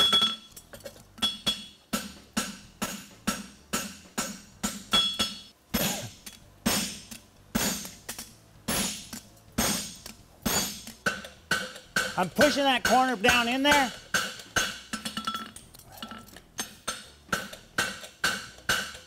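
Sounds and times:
high anvil ring: 0:04.9 - 0:06.1
hammer blows on anvil: 0:08.7 - 0:15.2.

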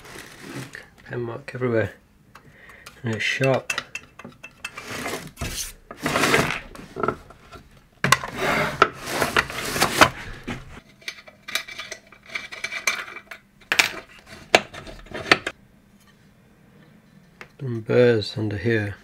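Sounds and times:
metal parts scraping and clinking: 0:10.8 - 0:15.5.

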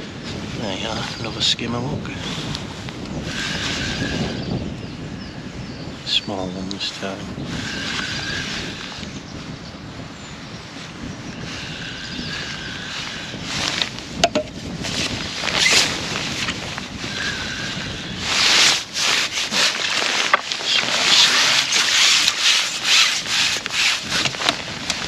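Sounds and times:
rustling handling noise: 0:18.2 - 0:25.0.

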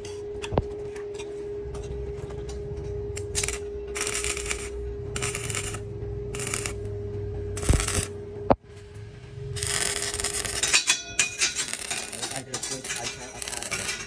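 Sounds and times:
steady hum: 0:00.0 - 0:14.0
welding arc crackling: 0:03.2 - 0:06.9, 0:07.5 - 0:08.2, 0:09.6 - 0:14.0.

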